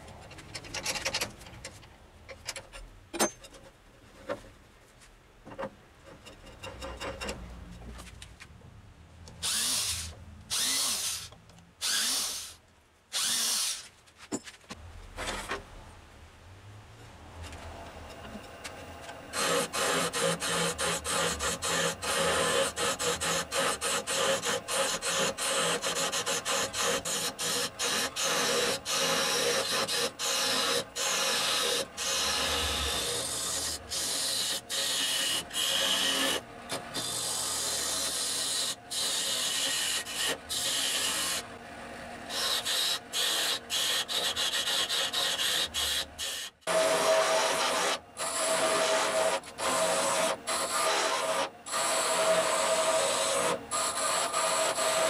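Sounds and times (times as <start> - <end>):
lathe gouge scraping wood: 19.3 - 36.4, 42.3 - 55.0.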